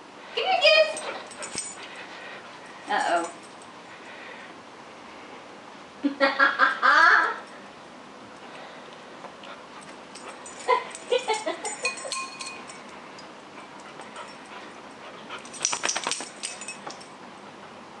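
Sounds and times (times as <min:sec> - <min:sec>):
sharp clicks and light jingling: 0:00.9 - 0:02.1, 0:09.8 - 0:17.2.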